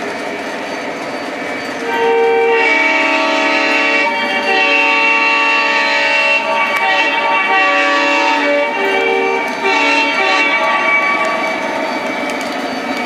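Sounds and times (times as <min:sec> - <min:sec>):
wheels running on track: 0:00.0 - 0:13.0
model train diesel horn: 0:01.8 - 0:11.6.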